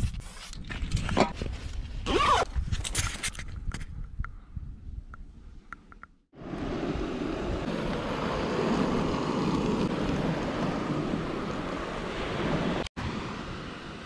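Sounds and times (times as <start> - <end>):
wind buffeting microphone: 0.0 - 5.7, 6.4 - 14.0
sea surf: 6.4 - 14.0.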